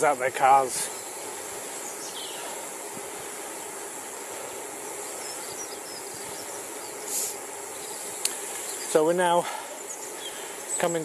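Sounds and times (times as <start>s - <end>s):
bicycle road noise: 0.0s - 11.0s
wind noise: 5.3s - 7.2s.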